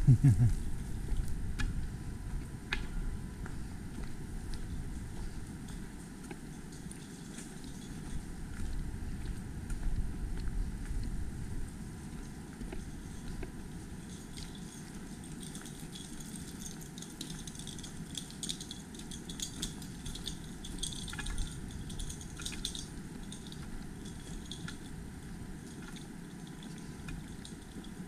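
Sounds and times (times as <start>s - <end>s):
steady low rumble: 0.0s - 6.2s, 7.9s - 14.4s
light clicks and clinks: 2.7s - 11.1s, 12.0s - 28.0s.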